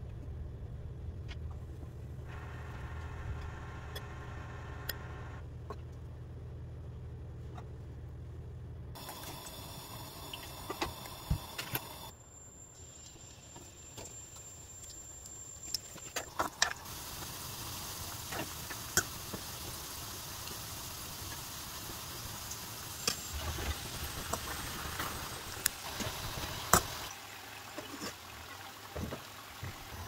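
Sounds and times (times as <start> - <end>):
food sizzling in hot oil: 16.3 - 27.6.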